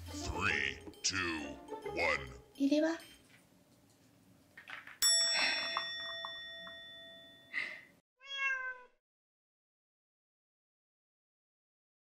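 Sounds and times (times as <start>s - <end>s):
bright bell chime: 5.0s - 7.7s.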